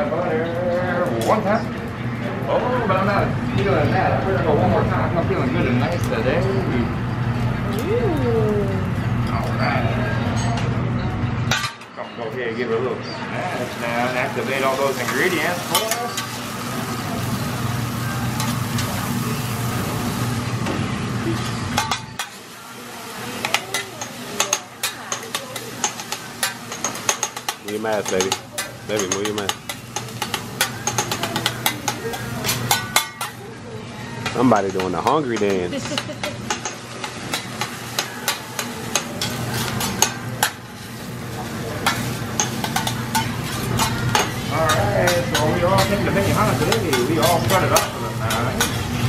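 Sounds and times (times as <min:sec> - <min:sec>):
food sizzling on a griddle: 0:13.3 - 0:49.0
metal spatula scraping: 0:41.8 - 0:49.0.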